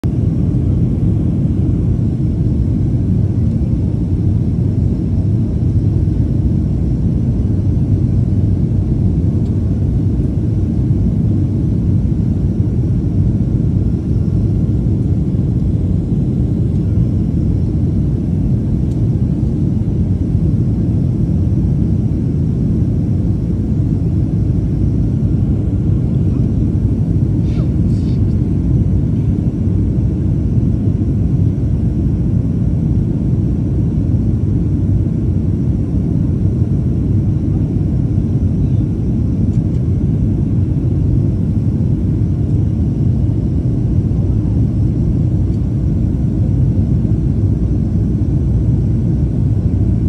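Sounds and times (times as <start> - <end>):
faint steady whine: 0.0 - 50.0
jet engine and airflow rumble: 0.0 - 50.0.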